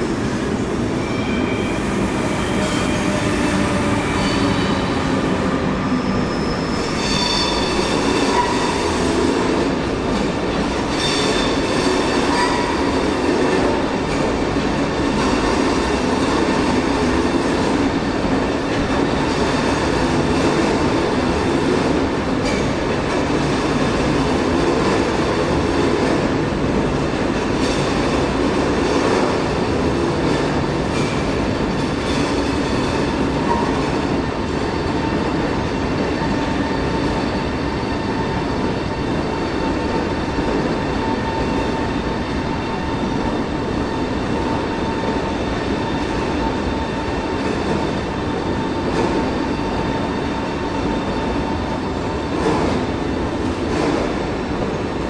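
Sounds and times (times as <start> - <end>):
train wheels rumbling: 0.0 - 55.0.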